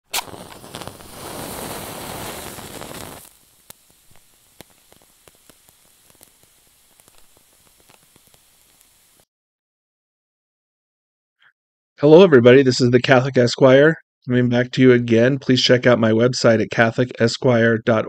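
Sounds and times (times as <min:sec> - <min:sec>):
flame crackling faintly: 0:00.1 - 0:09.2
lighter flame rushing hiss: 0:00.1 - 0:09.2.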